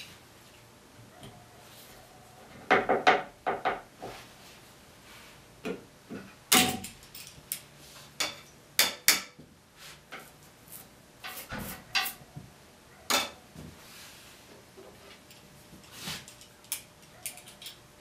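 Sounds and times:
wooden spindles and tools knocking: 2.6 - 4.2.

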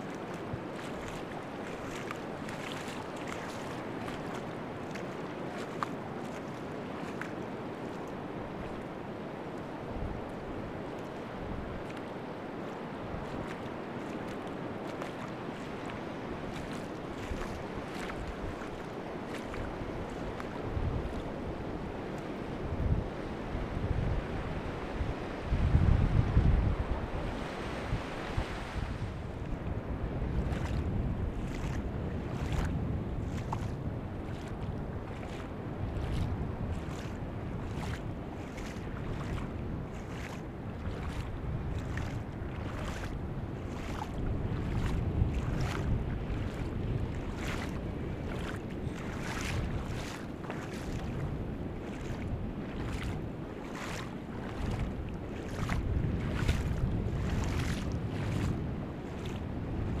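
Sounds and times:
small water splashes: 0.0 - 22.5, 27.2 - 60.0
wind on microphone: 9.7 - 60.0
ocean surf rumbling: 26.3 - 33.1.

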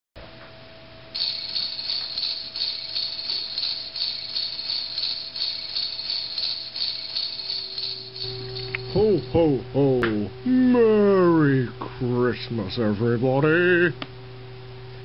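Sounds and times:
low electrical hum: 0.2 - 15.0
high-pitched rhythmic chirping: 1.2 - 9.6.

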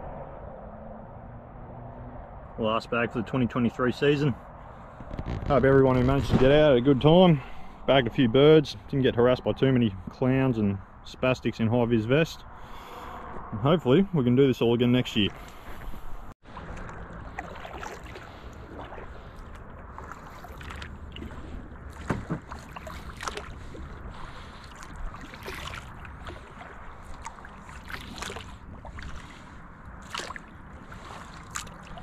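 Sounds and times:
paddle splashing in water: 15.2 - 32.0
paddle knocking against hull: 20.1 - 23.5.

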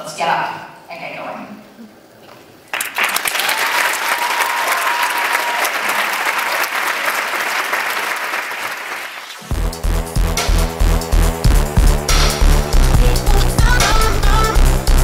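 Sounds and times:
audience applauding: 2.7 - 9.5
music with heavy bass beat: 9.5 - 15.0.

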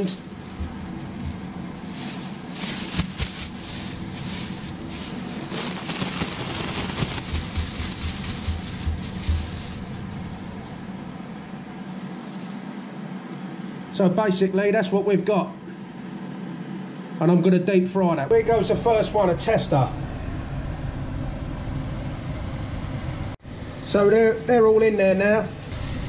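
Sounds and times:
plastic bag crinkling: 0.0 - 10.9
extractor fan humming: 0.0 - 26.0
fish thumping in bag: 2.4 - 4.6, 5.4 - 9.6.

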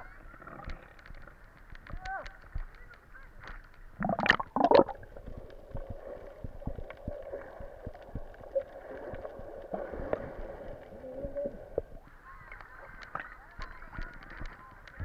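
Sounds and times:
small underwater clicks: 0.0 - 15.0
water splashing: 3.3 - 14.2.

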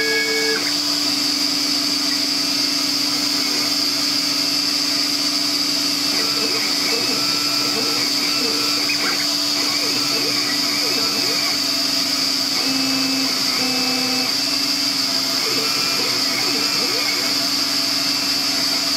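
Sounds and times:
suction motor running: 0.0 - 18.9
whining axis motors: 0.0 - 18.9.

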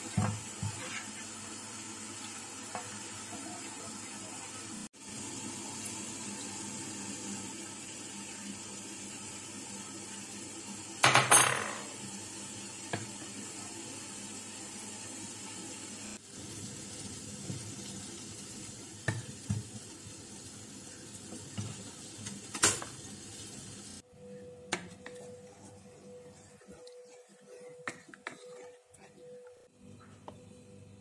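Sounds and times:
spatula stirring in metal pot: 24.8 - 29.5.

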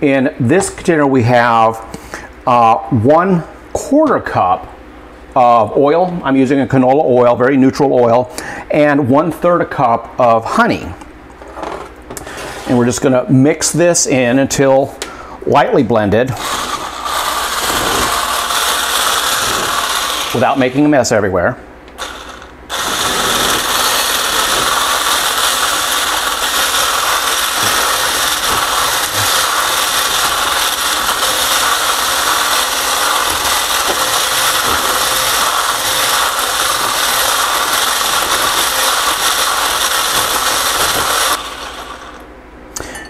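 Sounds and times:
stick blender whisking: 16.3 - 21.2, 21.9 - 42.2.

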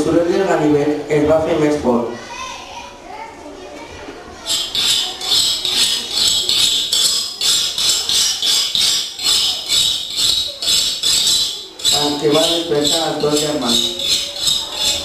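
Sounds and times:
knife sharpening strokes: 4.5 - 15.0.

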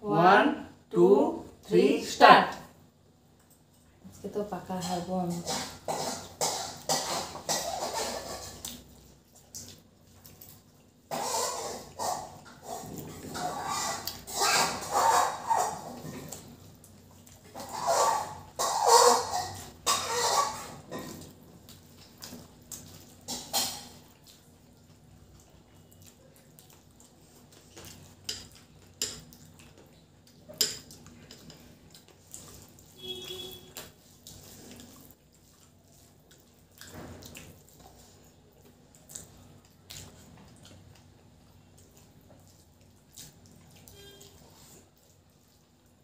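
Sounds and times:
wet chewing: 2.5 - 46.0.

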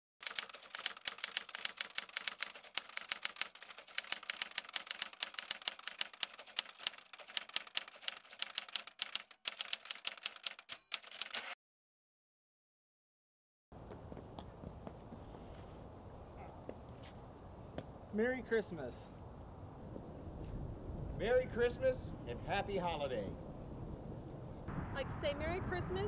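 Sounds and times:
typewriter key clacks: 0.2 - 11.6
typewriter margin bell ring: 0.2 - 11.6.

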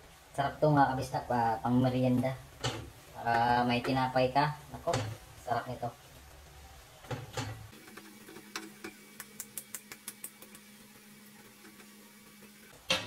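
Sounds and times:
spatula stirring noodles in pan: 1.4 - 12.9
spatula clicking on pan: 8.5 - 10.7.

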